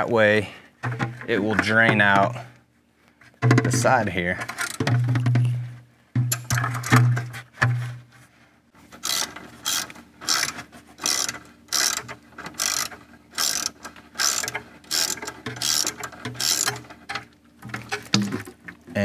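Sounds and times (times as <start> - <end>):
ratchet wrench clicking: 9.0 - 16.8.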